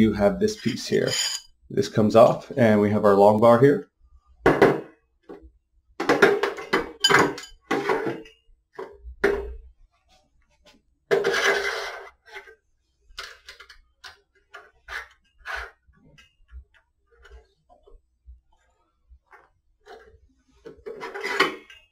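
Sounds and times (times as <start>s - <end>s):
metal scraping: 0.4s - 1.6s.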